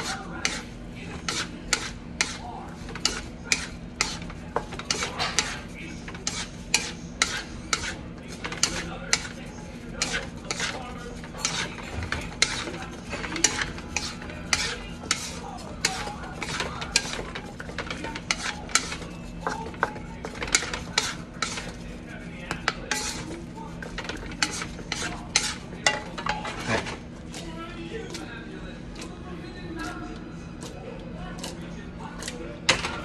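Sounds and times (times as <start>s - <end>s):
steady low hum: 0.0s - 33.0s
utensil scraping cooking pot: 0.0s - 33.0s.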